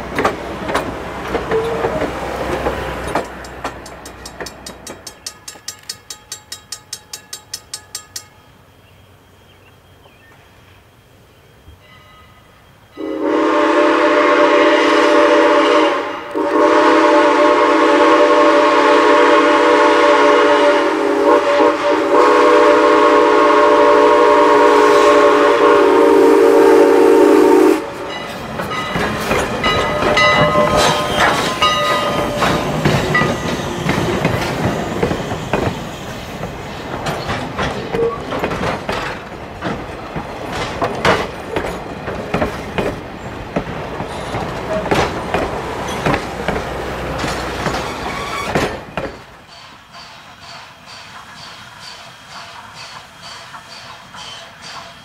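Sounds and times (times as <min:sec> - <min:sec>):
train wheels clicking over rail joints: 0:00.0 - 0:08.6, 0:28.0 - 0:55.0
steam whistle blasts: 0:13.0 - 0:28.2.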